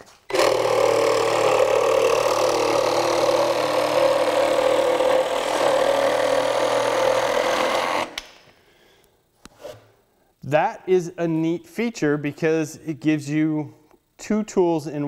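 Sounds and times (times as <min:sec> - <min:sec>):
saw cutting plywood: 0:00.3 - 0:08.2.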